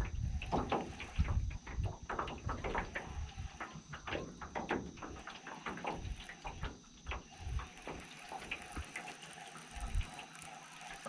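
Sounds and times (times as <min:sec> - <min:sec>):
water lapping against boat hull: 0:00.0 - 0:11.0.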